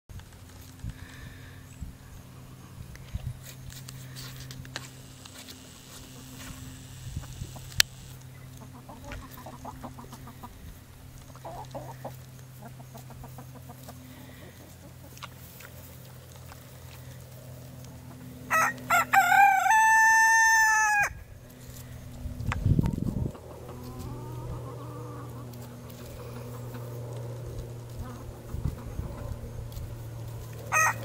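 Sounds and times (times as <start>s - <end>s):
rooster crowing: 18.5s - 21.2s, 30.6s - 31.0s.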